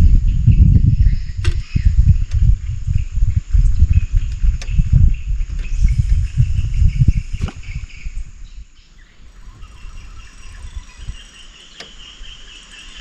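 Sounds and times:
low rumble: 0:00.0 - 0:11.3
faint clicks: 0:11.6 - 0:12.2.

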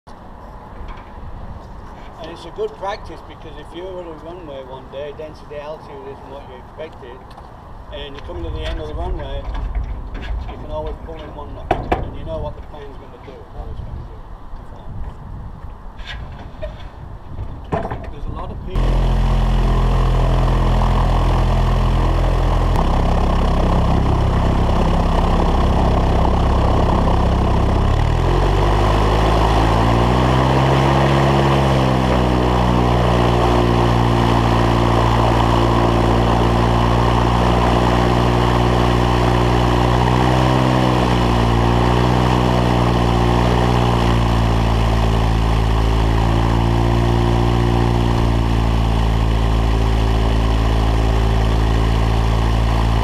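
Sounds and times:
aircraft piston engine and propeller: 0:18.7 - 0:53.0.

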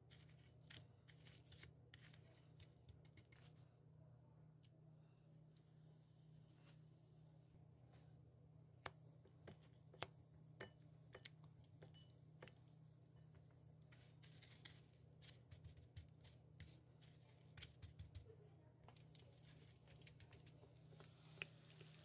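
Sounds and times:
low steady hum: 0:00.0 - 0:22.0
fingers handling soaked bread: 0:11.1 - 0:21.9.

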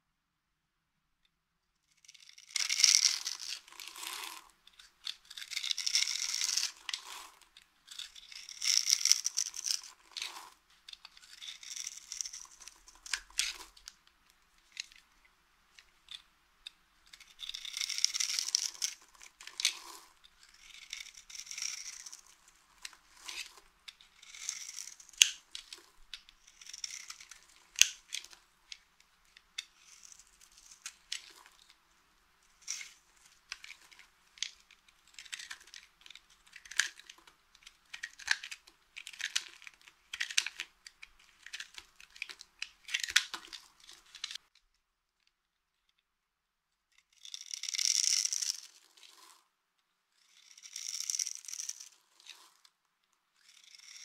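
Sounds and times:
knife scraping soap: 0:02.0 - 0:14.0, 0:17.0 - 0:31.8, 0:32.4 - 0:44.4, 0:50.2 - 0:52.7, 0:53.4 - 0:54.0
soap cracking: 0:02.5 - 0:14.0, 0:32.6 - 0:44.4.

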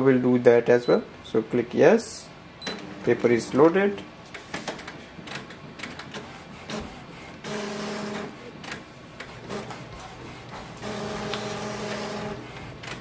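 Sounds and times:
printer mechanical clicks and ticks: 0:04.3 - 0:09.8, 0:10.6 - 0:13.0
printer motor whine: 0:06.6 - 0:13.0.

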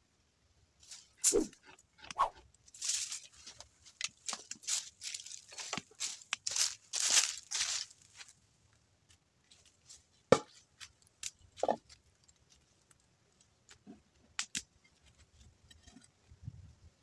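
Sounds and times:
footsteps on dry leaves: 0:02.7 - 0:08.4.

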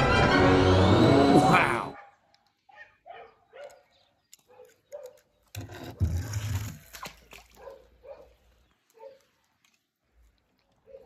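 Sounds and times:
toy car splashing into water: 0:05.6 - 0:07.7.

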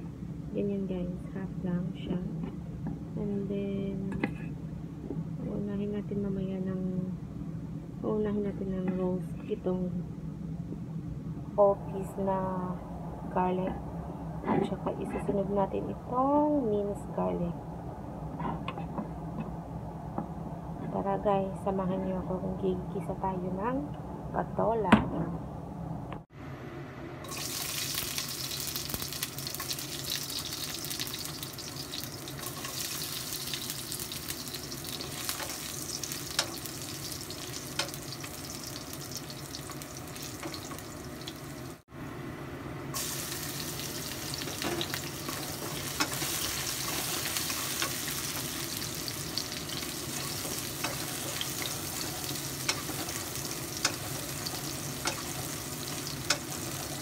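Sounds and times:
garlic sizzling in hot oil: 0:27.2 - 0:41.8, 0:42.9 - 0:57.0.

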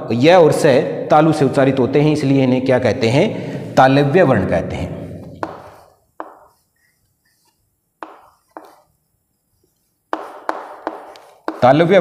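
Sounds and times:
chalk tapping on chalkboard: 0:05.2 - 0:12.0.

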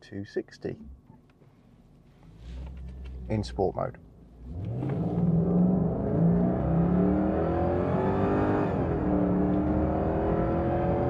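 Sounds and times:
car engine accelerating: 0:02.3 - 0:11.0.

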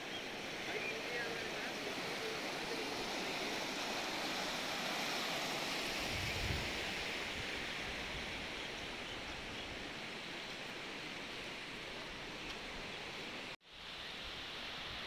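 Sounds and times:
river rushing over rocks: 0:00.0 - 0:09.5.

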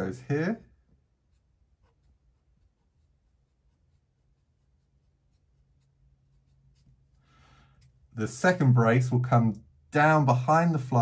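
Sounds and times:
marker scratching on paper: 0:01.0 - 0:08.1.

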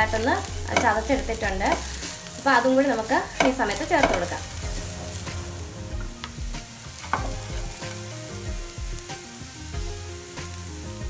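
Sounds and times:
hot oil sizzling: 0:00.0 - 0:11.0
wooden spatula scraping a pan: 0:00.6 - 0:06.3.

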